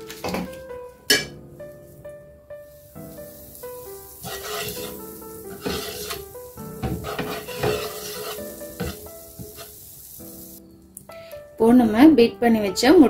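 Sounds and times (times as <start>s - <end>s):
butter sizzling in a pan: 2.7s - 10.7s
spatula scraping a pan: 4.1s - 9.9s.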